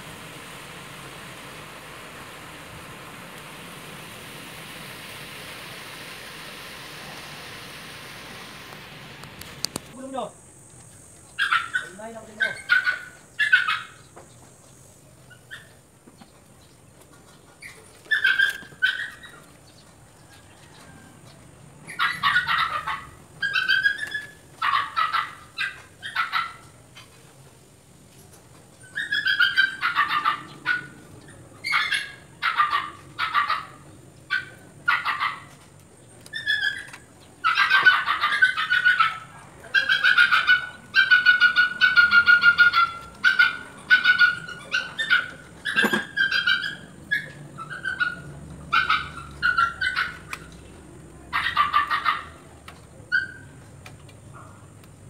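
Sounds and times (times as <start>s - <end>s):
drawn-out animal cry: 36.3s - 50.4s, 51.3s - 52.5s.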